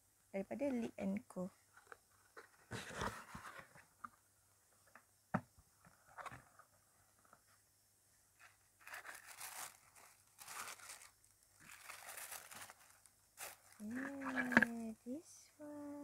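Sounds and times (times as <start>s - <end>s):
cardboard box being opened: 2.4s - 3.8s
tissue paper rustling: 8.8s - 14.5s.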